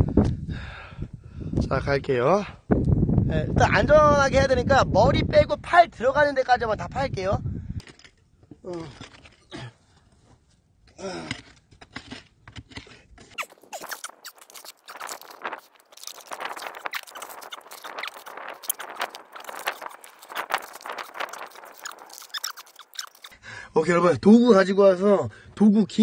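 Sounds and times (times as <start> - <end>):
dirt and stones crunching: 7.8 - 23.4.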